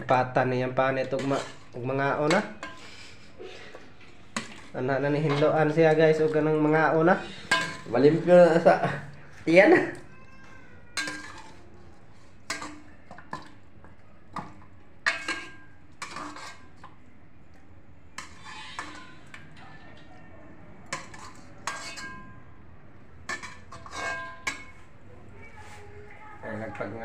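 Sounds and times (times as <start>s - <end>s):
metal ladle clanking on pots: 0.0s - 10.0s, 11.0s - 17.1s, 18.2s - 20.1s, 20.8s - 22.5s, 23.2s - 24.9s.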